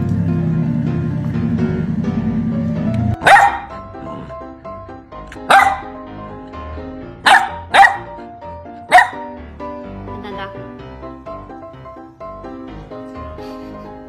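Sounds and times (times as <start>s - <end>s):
background music: 0.0s - 14.0s
puppy barking: 3.2s - 3.8s, 5.4s - 6.0s, 7.2s - 9.3s.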